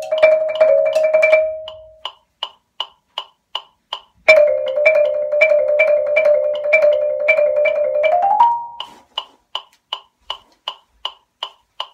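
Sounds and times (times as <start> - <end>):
marimba played fast: 0.0 - 2.0, 4.3 - 8.9
metronome clicking: 0.0 - 11.9.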